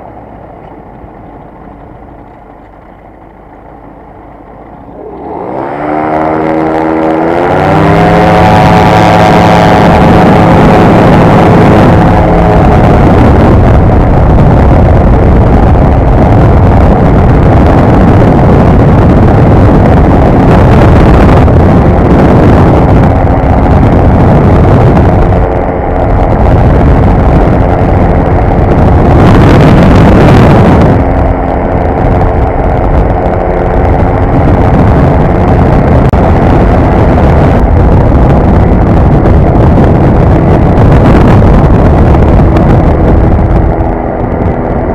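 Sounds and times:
light aircraft engine and propeller: 0.0 - 44.9
wind rush over microphone: 0.0 - 44.9.

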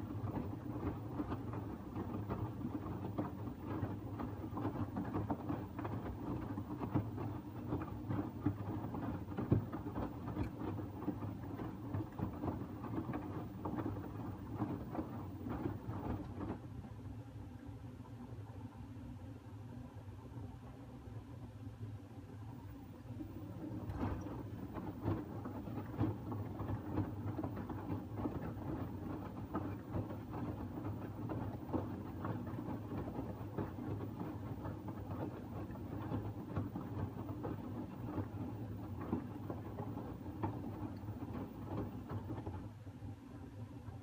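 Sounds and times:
water splashing in drum: 0.0 - 16.6, 23.2 - 42.7
washing machine motor hum: 0.0 - 44.0
laundry thudding in drum: 23.2 - 42.6.

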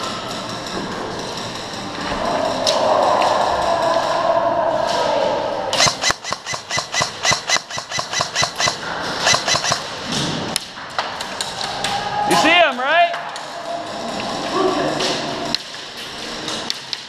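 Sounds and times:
steady high whine: 0.0 - 10.5
airsoft rifle shots: 5.8 - 10.1.

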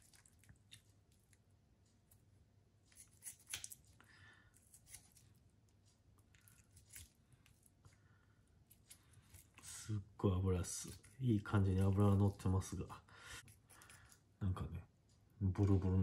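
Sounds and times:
knife snipping and scraping meat: 2.9 - 3.9, 4.6 - 5.4, 6.3 - 7.6.

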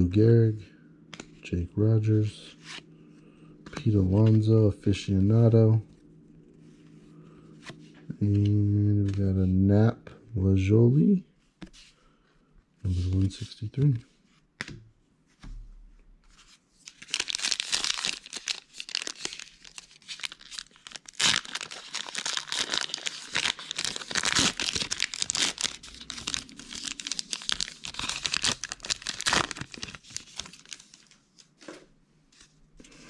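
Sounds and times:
wrapper crinkling as torn open: 16.8 - 31.2.

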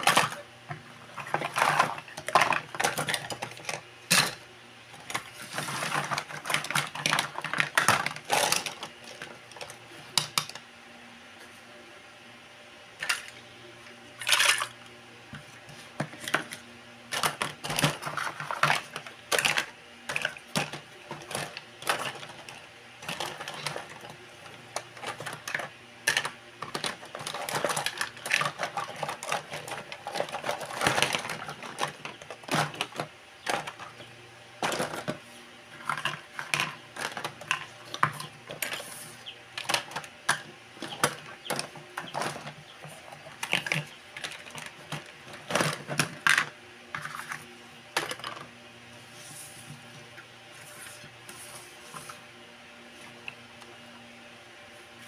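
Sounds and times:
plastic toy dishes clattering: 0.0 - 4.4, 5.0 - 10.6, 13.0 - 13.4, 14.2 - 14.8, 16.0 - 38.9, 39.6 - 48.5.

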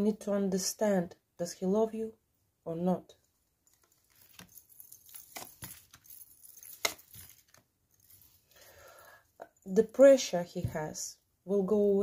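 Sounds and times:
cards tapping and flicking: 4.1 - 7.6.

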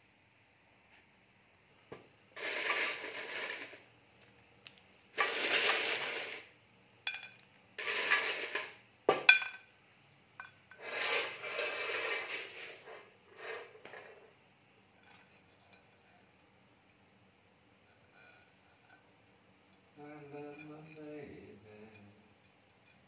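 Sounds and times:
croutons rustling: 2.4 - 6.5, 7.8 - 8.8.

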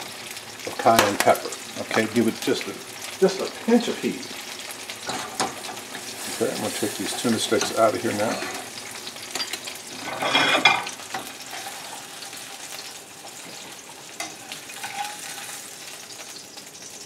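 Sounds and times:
fish sizzling in a frying pan: 0.0 - 17.0.

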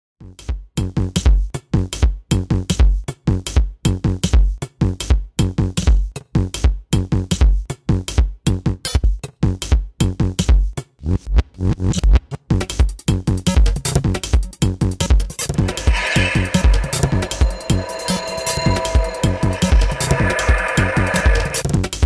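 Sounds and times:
electronic music with drum beat: 15.6 - 21.6.

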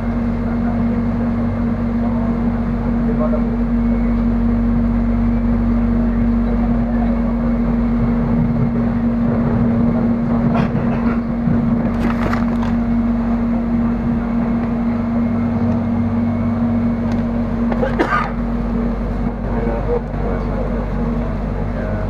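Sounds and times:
train cabin hum and rumble: 0.0 - 22.0.

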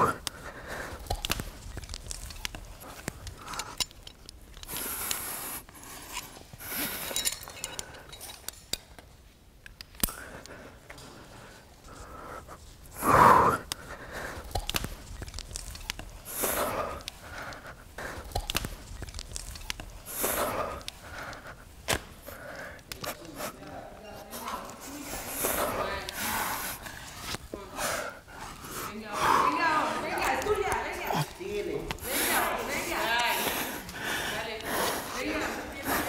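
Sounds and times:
person breathing hard: 0.0 - 8.5, 9.9 - 36.0
person grunting: 30.9 - 32.3.

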